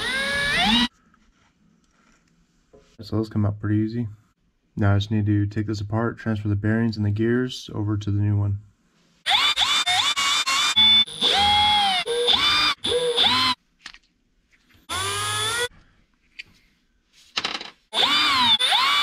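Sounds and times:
electric screwdriver motor whine: 0:00.0 - 0:00.9, 0:09.3 - 0:13.6, 0:14.9 - 0:15.7, 0:18.0 - 0:19.0.

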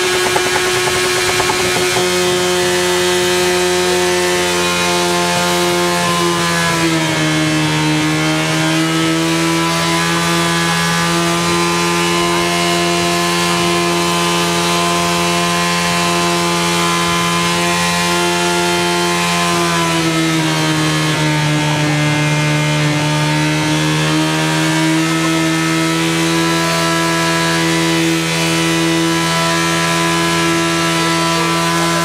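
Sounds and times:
motorcycle engine running: 0:00.0 - 0:07.2.

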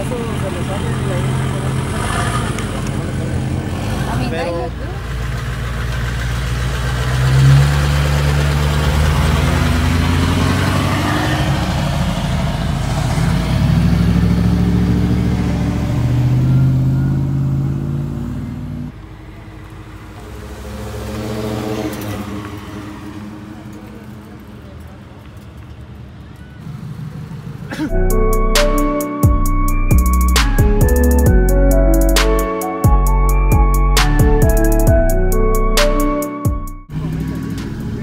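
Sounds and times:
pickup trucks revving past: 0:00.0 - 0:24.8, 0:36.9 - 0:38.0
quiet truck rolling by: 0:00.0 - 0:28.5.

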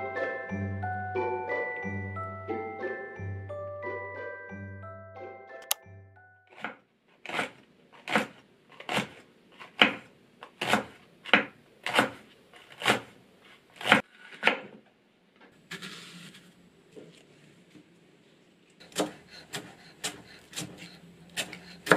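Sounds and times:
knife chopping on wooden board: 0:07.3 - 0:10.0, 0:10.6 - 0:12.2, 0:18.8 - 0:21.9.

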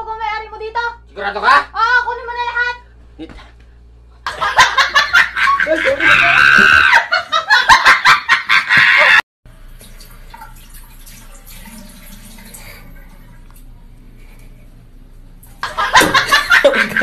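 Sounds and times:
loud shrill scream: 0:06.0 - 0:07.1
faucet running into sink: 0:09.5 - 0:13.7.

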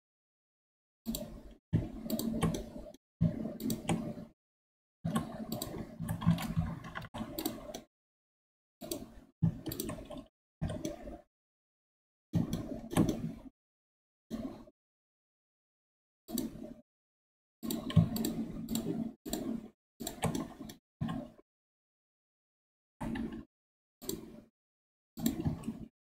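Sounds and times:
computer keyboard keystrokes: 0:05.1 - 0:07.9, 0:08.8 - 0:11.0
mouse clicks: 0:08.8 - 0:11.0.

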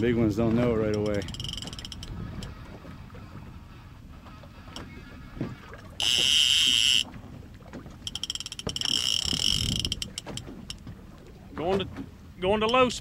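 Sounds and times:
wind and water rumble: 0:00.0 - 0:13.0
reel rapid clicking: 0:00.9 - 0:02.5, 0:06.0 - 0:07.0, 0:08.0 - 0:10.8
fishing reel drag buzzing: 0:00.9 - 0:05.2, 0:06.0 - 0:07.1, 0:08.0 - 0:10.8.

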